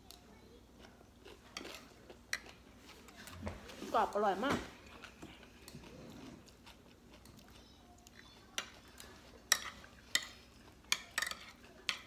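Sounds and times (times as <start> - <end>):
chewing crunchy salad: 0.0 - 3.8, 4.8 - 12.0
fork and spoon clinking on plate: 9.5 - 12.0.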